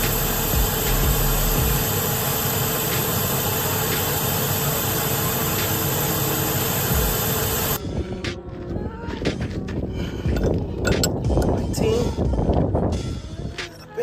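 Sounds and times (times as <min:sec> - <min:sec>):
truck engine running: 0:00.0 - 0:07.8.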